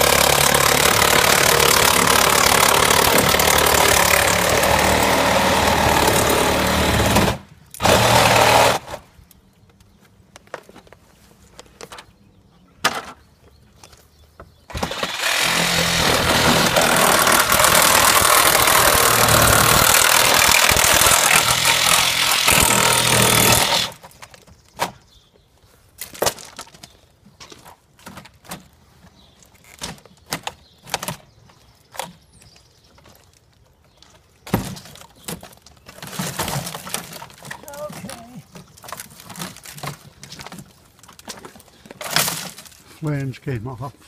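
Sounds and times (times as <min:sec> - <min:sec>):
cordless power tool cutting wood: 0:00.0 - 0:09.0, 0:14.7 - 0:24.0.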